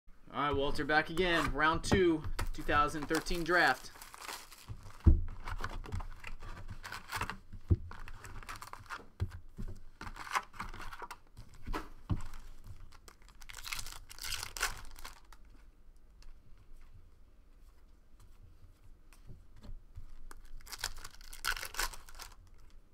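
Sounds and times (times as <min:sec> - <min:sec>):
foil wrappers ripping and crinkling: 0:02.5 - 0:05.6, 0:08.4 - 0:09.0, 0:12.9 - 0:15.4, 0:20.4 - 0:22.7.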